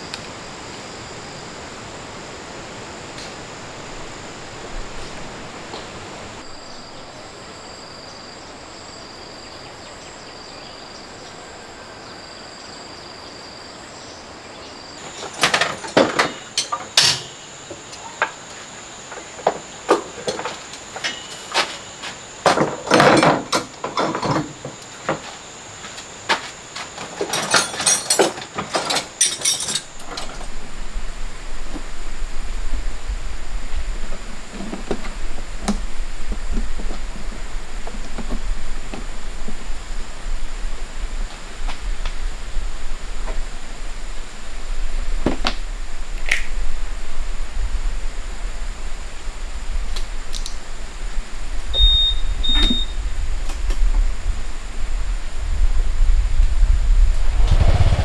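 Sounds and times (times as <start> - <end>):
high insect drone: 0.0 - 58.0
tools clanking on metal shelves: 15.0 - 17.4, 19.5 - 25.2, 26.4 - 30.6
low steady rumble: 42.3 - 58.0.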